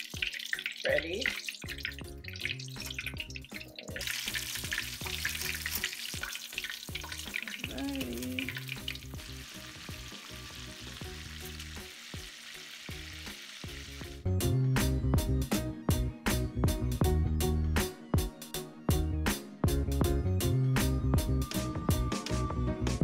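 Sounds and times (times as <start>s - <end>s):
chicken sizzling in oil: 0.0s - 14.2s.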